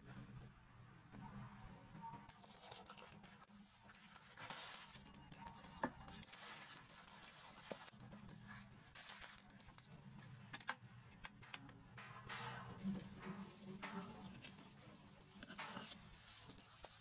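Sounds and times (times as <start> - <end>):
baking paper and cling film crinkling: 2.3 - 10.2.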